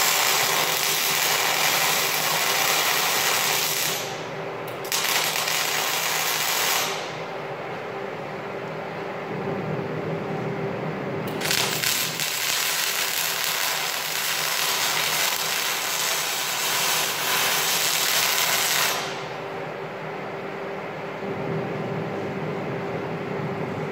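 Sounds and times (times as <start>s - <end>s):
welding arc hissing: 0.0s - 7.2s, 11.3s - 19.4s
machine hum: 0.0s - 23.9s.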